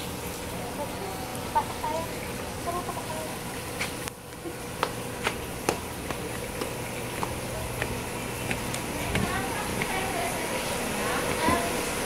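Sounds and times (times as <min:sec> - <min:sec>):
steady buzzing hum: 0:00.0 - 0:12.0
footsteps climbing stairs: 0:03.8 - 0:11.9.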